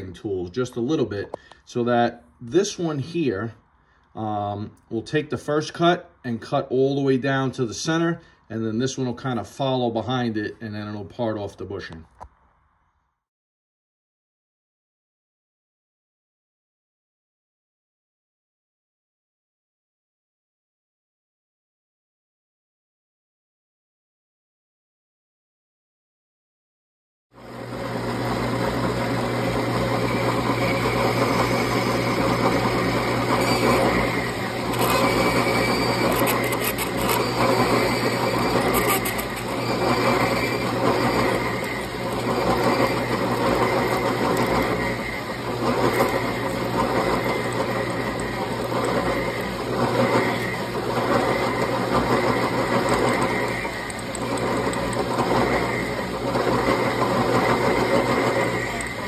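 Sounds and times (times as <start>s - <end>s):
lathe motor hum: 27.4s - 59.0s
tools cutting metal bar: 31.0s - 55.5s.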